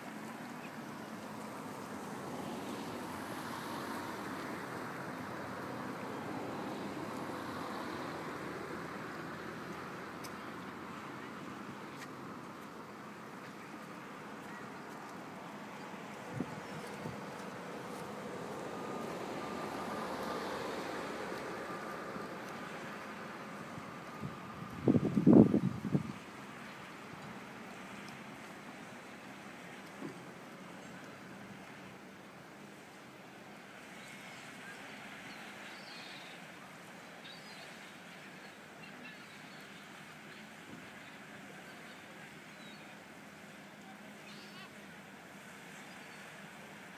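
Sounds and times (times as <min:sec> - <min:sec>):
jet ski engine droning: 0:12.8 - 0:26.3
faint short bird calls: 0:44.2 - 0:44.8.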